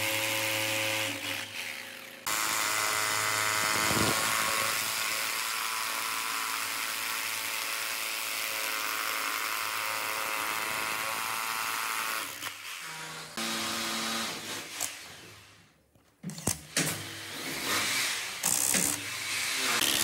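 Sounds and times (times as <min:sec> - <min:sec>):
power tool motor whine: 0:00.0 - 0:07.4.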